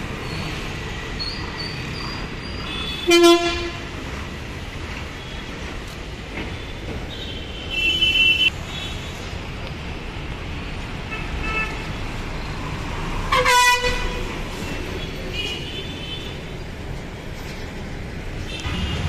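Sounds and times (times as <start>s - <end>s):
bus engines rumbling: 0.0s - 19.0s
vehicle horns honking: 2.7s - 3.9s, 13.3s - 14.3s.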